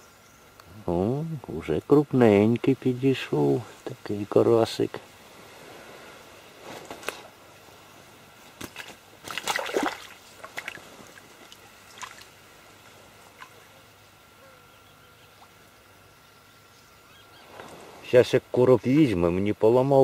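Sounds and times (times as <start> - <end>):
water splashing: 8.6 - 12.4.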